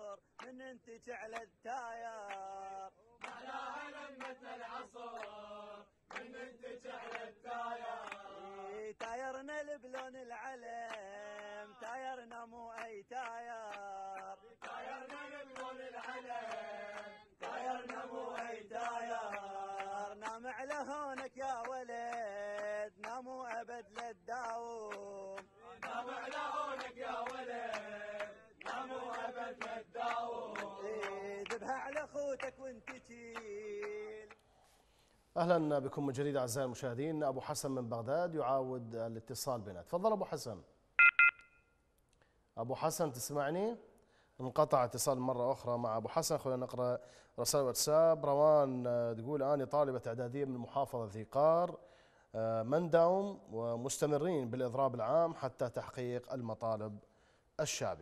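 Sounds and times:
men chanting together: 0.0 - 34.4
hands clapping: 0.4 - 1.5, 2.2 - 2.5, 3.2 - 4.5, 5.1 - 5.4, 6.1 - 8.3, 9.0 - 9.3, 9.9 - 10.2, 10.8 - 12.0, 12.7 - 34.5.

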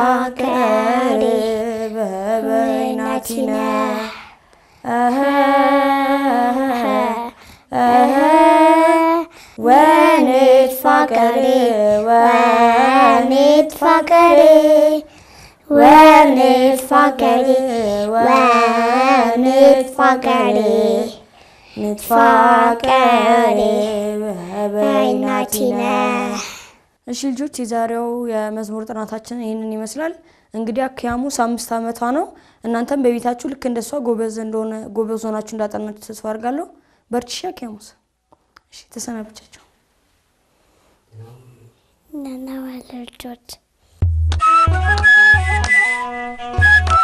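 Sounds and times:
child singing unaccompanied: 0.0 - 26.7.

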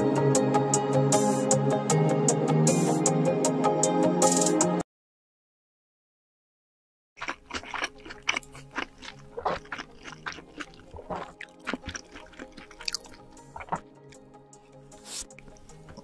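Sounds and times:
mouth clicks: 7.2 - 14.2
wet chewing: 7.2 - 14.3, 14.9 - 16.0
soft background music: 7.9 - 16.0.

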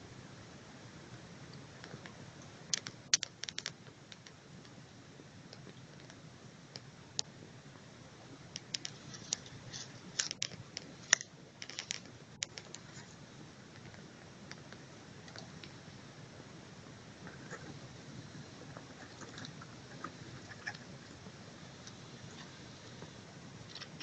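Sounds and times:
faint low steady noise: 0.0 - 24.0
sharp clicks and crackles: 1.5 - 4.8, 5.5 - 7.3, 8.5 - 15.8.

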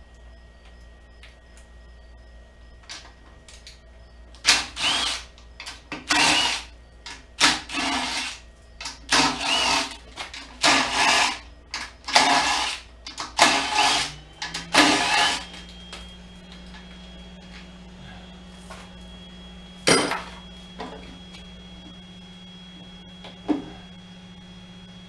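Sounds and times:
cordless drill whining bursts: 4.4 - 6.8, 7.4 - 8.5, 9.1 - 17.3.

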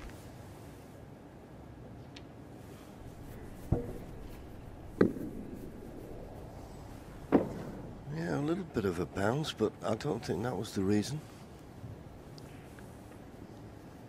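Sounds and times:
low hush of quiet arena: 0.0 - 14.0
snooker balls clicking: 3.1 - 8.0.

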